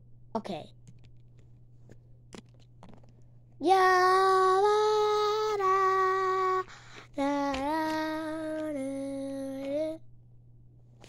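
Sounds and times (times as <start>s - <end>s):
child singing held notes: 3.6s - 10.0s.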